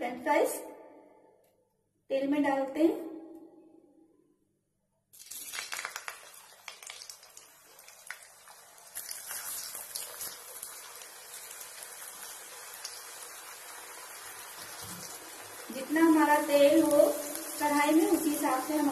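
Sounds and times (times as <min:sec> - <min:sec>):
potato sticks sizzling in hot oil: 0:05.2 - 0:18.9.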